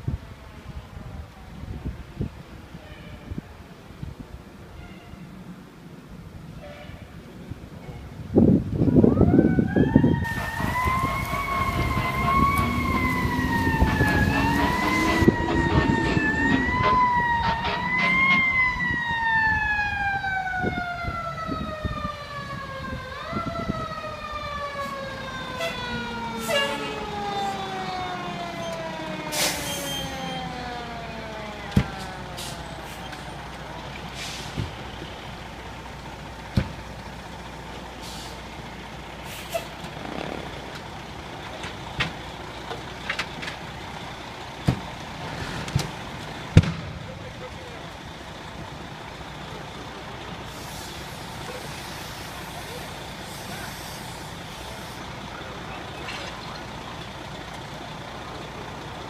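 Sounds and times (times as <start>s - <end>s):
fire engine siren wailing: 8.7s - 59.0s
heavy low rumble: 10.3s - 19.2s.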